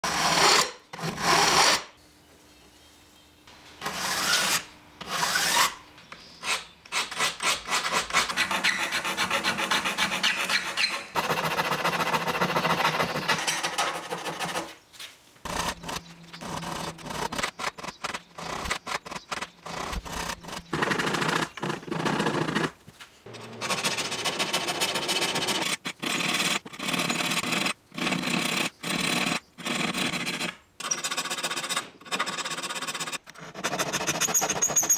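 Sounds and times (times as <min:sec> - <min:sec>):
hand file rasping on saw teeth: 0:06.4 - 0:14.7.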